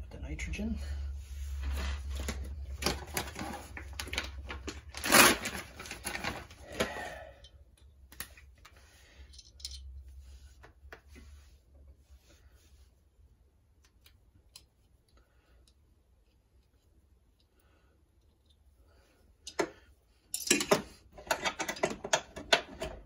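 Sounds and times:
steady low hum: 0.0 - 20.4
clicks and rattles of hose fittings: 7.4 - 11.2, 19.4 - 23.0.

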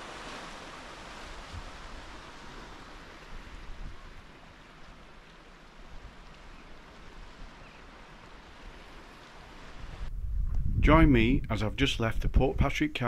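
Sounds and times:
surf hissing on rocky shore: 0.0 - 10.1
wind rumbling on microphone: 0.0 - 13.0.

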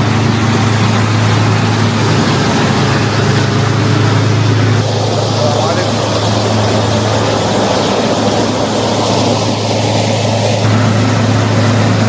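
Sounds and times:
heavy diesel engine running: 0.0 - 12.0.

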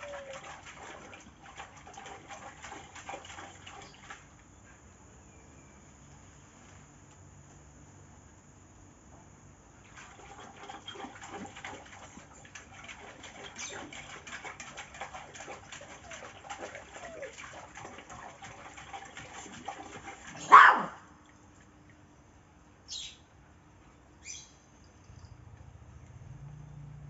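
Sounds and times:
dog splashing and slurping water: 0.0 - 4.4, 9.8 - 21.8
dog making loud short sound: 20.4 - 21.0.

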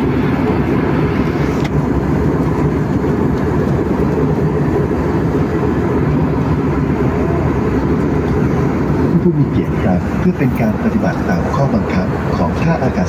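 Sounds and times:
jet airliner cabin noise: 0.0 - 13.0.

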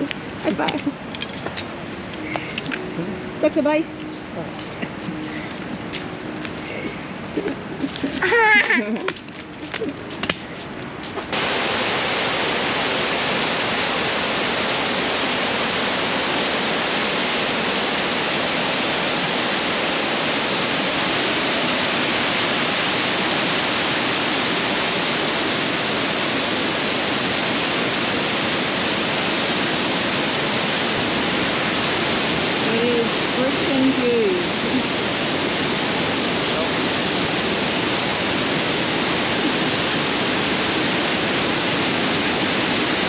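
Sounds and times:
waterfall rushing: 6.7 - 8.8, 11.3 - 43.0.

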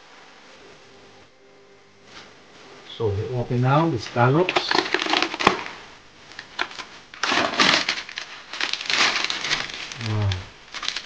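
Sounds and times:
plastic crinkling and crackling: 4.4 - 11.0.

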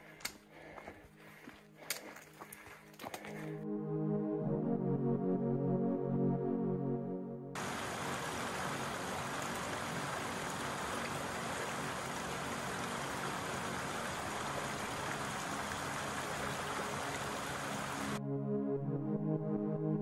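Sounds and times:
creek rushing over rocks: 7.6 - 18.2.

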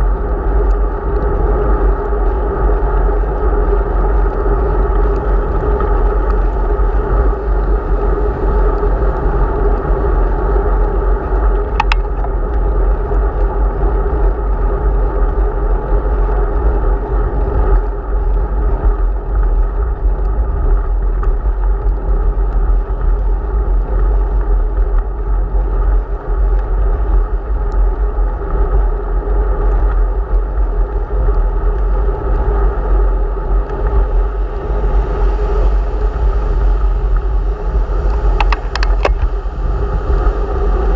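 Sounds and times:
bicycle tyres on wet road: 0.0 - 40.9
wind rumbling on microphone: 0.0 - 40.9.

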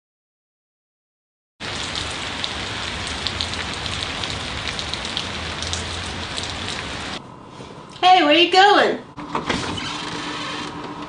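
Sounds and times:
steady rain falling: 1.6 - 7.2.

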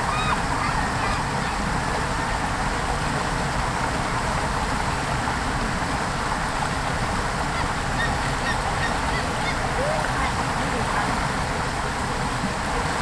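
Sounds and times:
gulls calling: 0.0 - 1.7, 7.3 - 10.9
shallow water rushing: 0.0 - 13.0.

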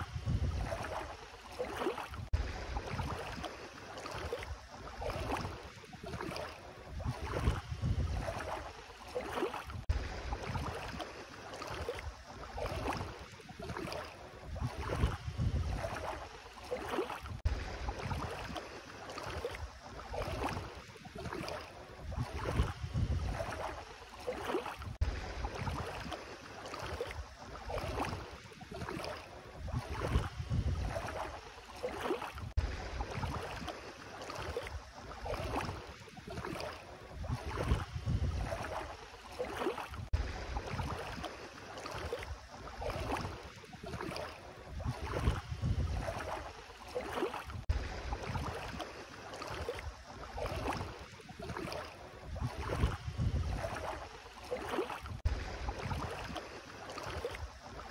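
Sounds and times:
wind rumbling on microphone: 0.0 - 1.2, 2.1 - 3.5, 4.3 - 8.8, 9.6 - 11.0, 12.0 - 16.3, 17.2 - 18.6, 19.6 - 23.8, 24.8 - 26.1, 28.9 - 31.4, 32.3 - 33.7, 34.7 - 39.0, 39.9 - 41.3, 42.3 - 46.6, 47.4 - 48.8, 49.8 - 54.2, 55.0 - 56.4
feet splashing through water: 0.0 - 57.9.

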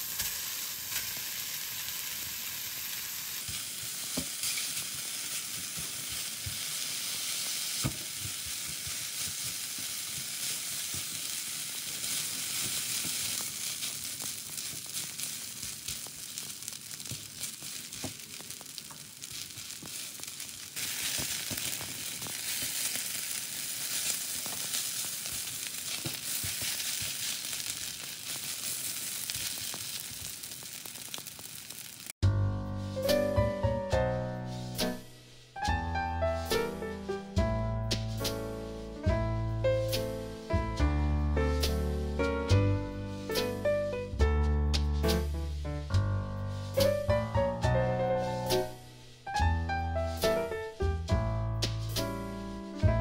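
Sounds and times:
food sizzling in a frying pan: 0.0 - 32.2, 32.8 - 44.1, 45.0 - 52.9
piano music: 32.2 - 53.0.

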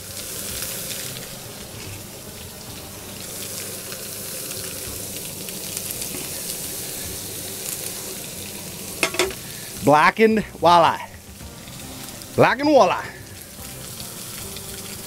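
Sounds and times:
fish frying in a pan: 0.0 - 15.0.

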